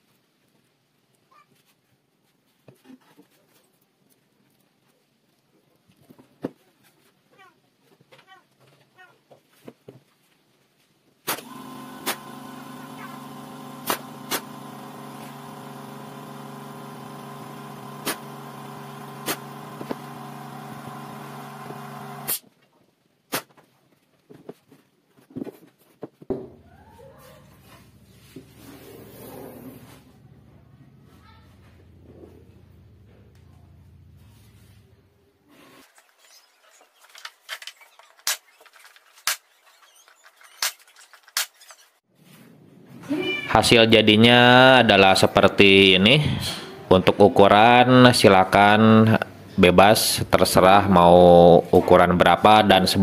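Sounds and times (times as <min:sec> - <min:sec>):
nail gun firing: 0:11.3 - 0:15.3, 0:17.8 - 0:20.3
air compressor humming: 0:11.4 - 0:22.4.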